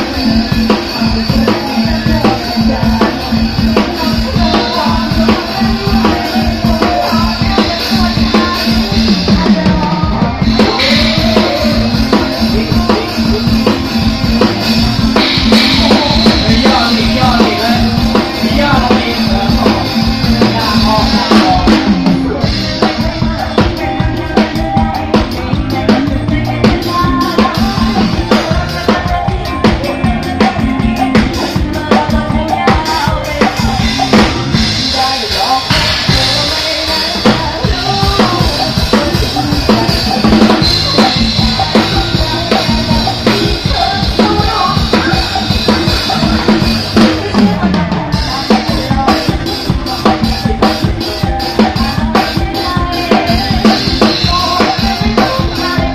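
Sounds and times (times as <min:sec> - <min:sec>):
drum kit beat: 0:00.0 - 0:55.9
live band playing dance music: 0:00.0 - 0:55.9.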